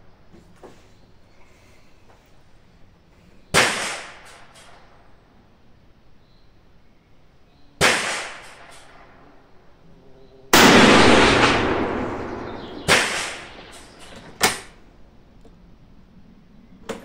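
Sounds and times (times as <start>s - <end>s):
gunshots: 3.6s - 4.6s, 7.8s - 9.1s, 10.6s - 14.8s
rifle shot with ringing tail: 7.8s - 9.2s, 10.5s - 14.7s.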